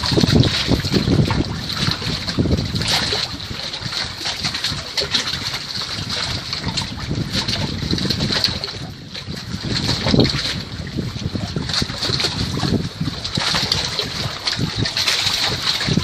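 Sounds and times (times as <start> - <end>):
waves lapping against a dock: 0.0 - 16.0
wind gusting on microphone: 0.0 - 16.0.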